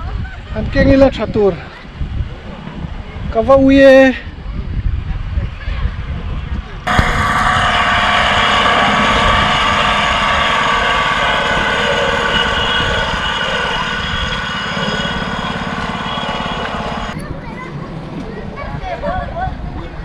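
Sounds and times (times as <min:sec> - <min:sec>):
small motor whining: 0:06.9 - 0:17.2.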